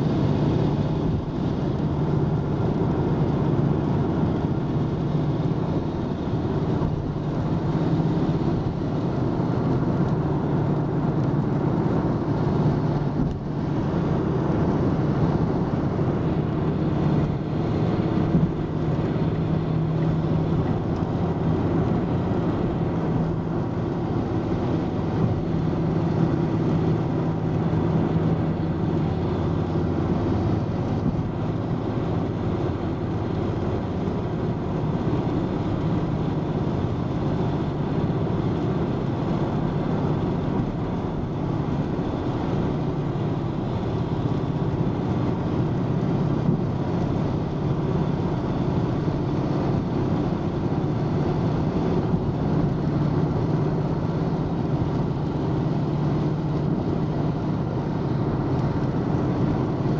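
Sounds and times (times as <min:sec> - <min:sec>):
car interior road rumble: 0:00.0 - 0:59.9.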